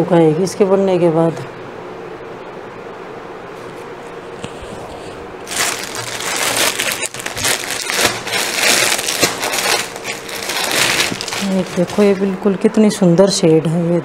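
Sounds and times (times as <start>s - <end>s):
low room hum: 0.0s - 14.0s
fabric crinkling and rustling: 4.5s - 12.4s.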